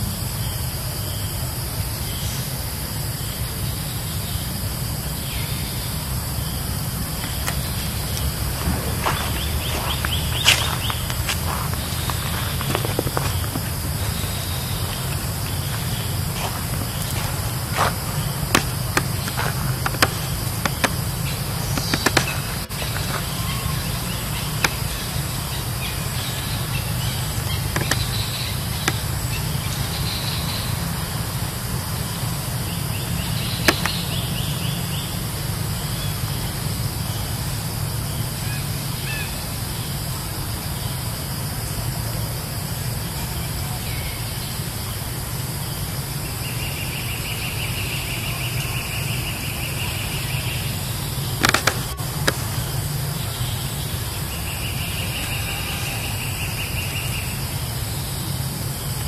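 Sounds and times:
steady low rumble: 0.0s - 38.0s
sharp clicks: 51.4s - 52.4s.

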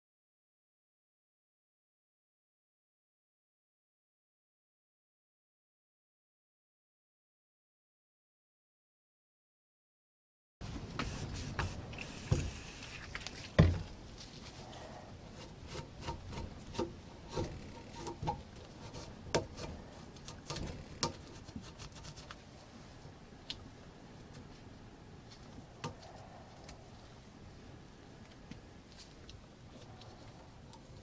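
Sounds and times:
rag rubbing metal: 15.3s - 22.0s.

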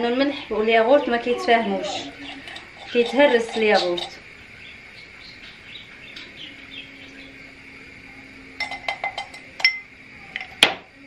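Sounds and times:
glass bowl clinking: 1.9s - 4.2s, 8.6s - 10.8s.

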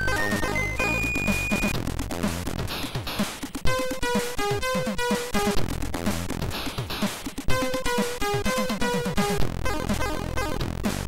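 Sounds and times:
chiptune music: 0.0s - 2.6s, 7.5s - 11.0s.

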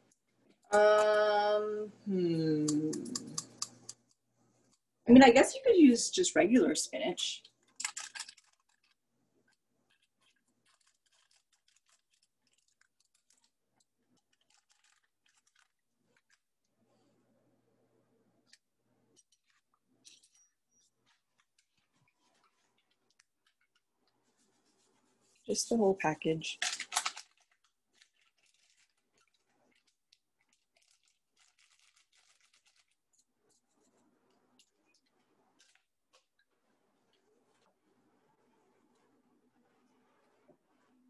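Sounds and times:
plastic sachet crinkling: 7.4s - 16.6s, 18.4s - 25.7s, 26.3s - 35.9s
faint crackles and ticks: 7.4s - 16.7s, 18.4s - 25.5s, 26.6s - 41.0s.

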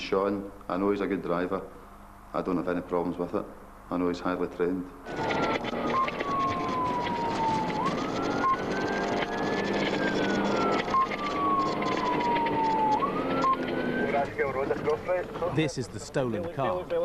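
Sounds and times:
police siren wailing: 5.0s - 14.9s
engine and road noise: 5.0s - 17.0s.

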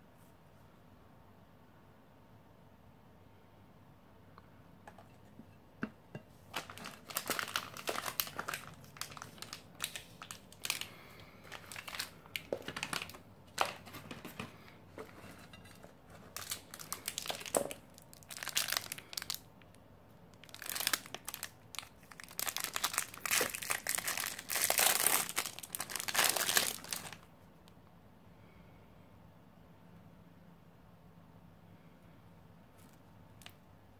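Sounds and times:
plastic packaging crinkling: 6.4s - 19.5s, 20.4s - 27.3s
wrapper being torn open: 6.5s - 14.3s, 16.2s - 19.5s, 20.4s - 27.3s.

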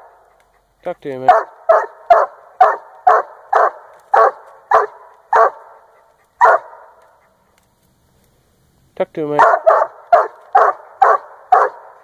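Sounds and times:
dog barking: 1.2s - 7.0s, 9.4s - 12.0s.

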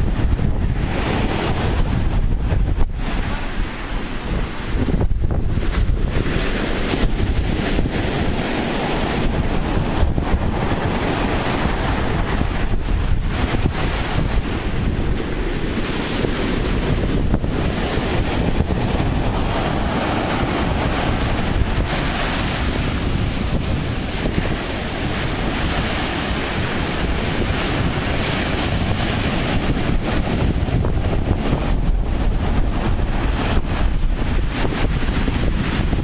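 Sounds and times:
ocean surf breaking: 0.0s - 36.0s
wind buffeting microphone: 0.0s - 36.0s.

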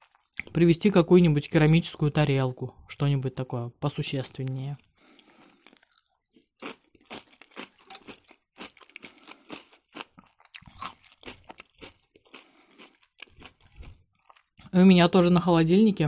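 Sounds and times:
crisp wet chewing crunches: 4.4s - 15.3s.

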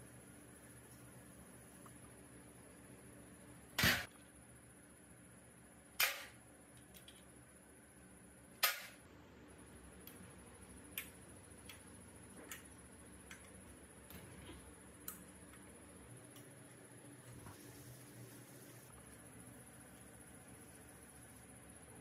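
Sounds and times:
light clicks and taps of tools: 6.0s - 7.3s.

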